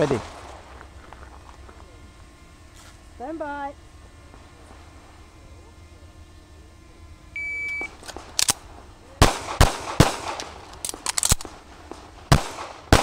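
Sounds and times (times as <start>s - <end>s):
pistol shots: 9.2s - 13.0s.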